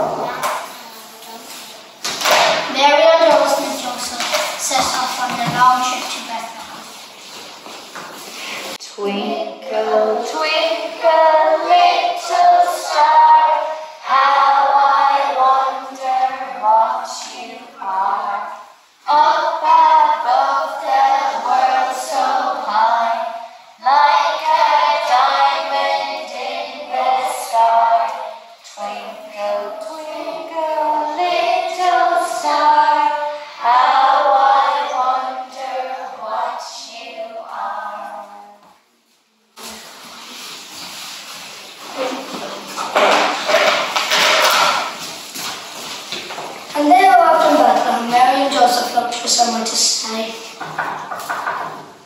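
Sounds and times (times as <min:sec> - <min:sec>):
children singing in unison: 0:09.0 - 0:38.6, 0:42.9 - 0:45.0.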